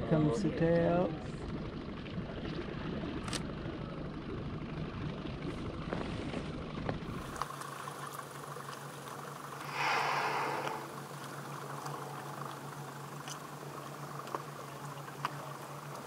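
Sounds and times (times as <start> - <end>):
boat engine rumbling: 0.0 - 16.0
steady hum: 9.3 - 14.2.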